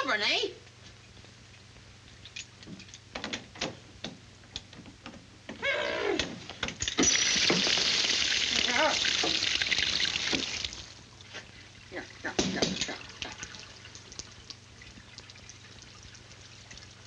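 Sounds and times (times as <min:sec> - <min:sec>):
water spraying hiss: 0:07.0 - 0:10.9.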